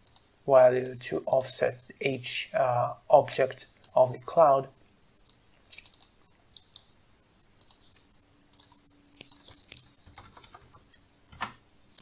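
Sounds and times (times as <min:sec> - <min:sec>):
computer mouse clicks: 0:00.0 - 0:01.5, 0:05.2 - 0:06.9, 0:07.6 - 0:11.6.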